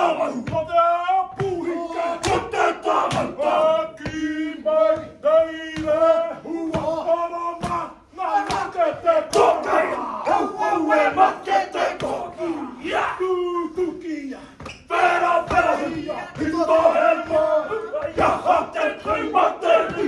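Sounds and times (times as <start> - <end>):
men chanting and shouting in unison: 0.0 - 20.0
sharp slaps: 1.3 - 3.4, 7.6 - 10.0.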